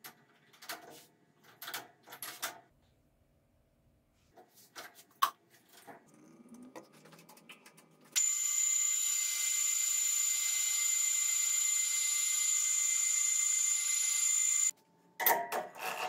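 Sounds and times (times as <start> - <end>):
lathe running with high whine: 8.2 - 14.7.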